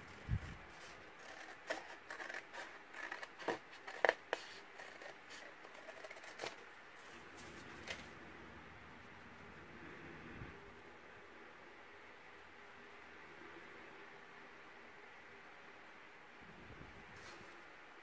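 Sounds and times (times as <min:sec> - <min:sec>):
scissors snipping cardstock: 0:01.2 - 0:06.6.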